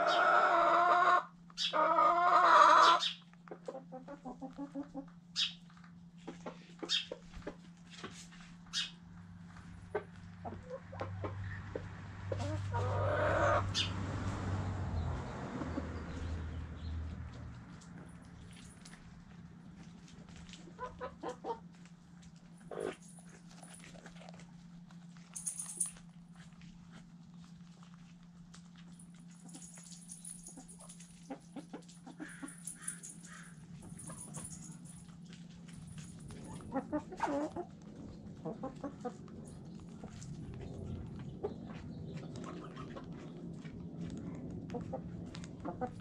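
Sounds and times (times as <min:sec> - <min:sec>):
chickens clucking: 0:00.0 - 0:14.4, 0:15.0 - 0:16.6, 0:19.9 - 0:24.3, 0:30.4 - 0:34.6, 0:36.3 - 0:46.0
low steady hum: 0:00.0 - 0:46.0.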